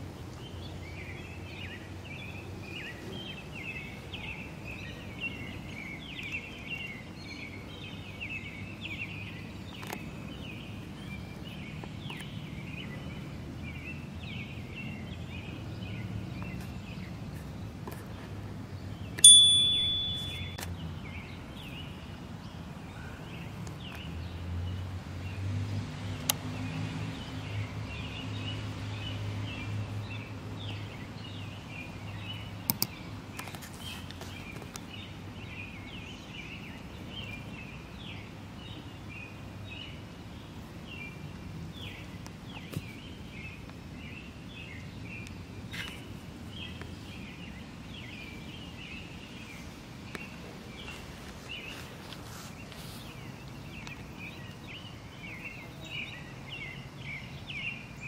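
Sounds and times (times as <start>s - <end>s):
birds chirping: 0.3s - 24.4s.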